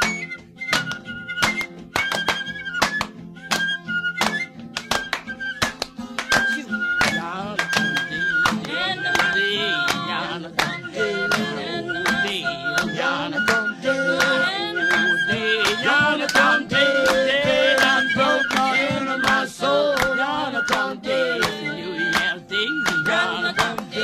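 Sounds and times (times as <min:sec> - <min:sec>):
steady handclaps: 0:00.0 - 0:24.0
group singing a cappella: 0:08.1 - 0:24.0.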